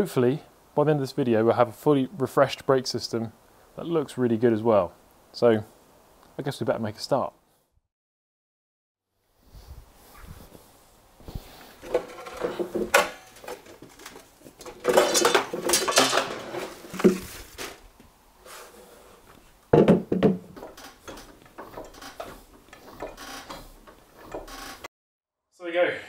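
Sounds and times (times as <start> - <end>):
metal tools clanking: 11.8 - 17.2, 20.5 - 24.6.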